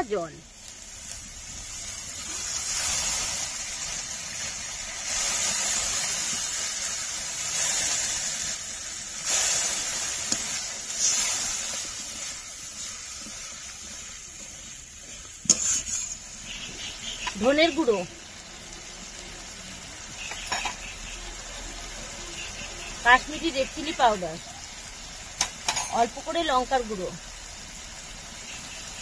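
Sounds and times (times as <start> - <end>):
masala sizzling in hot oil: 0.0 - 29.0.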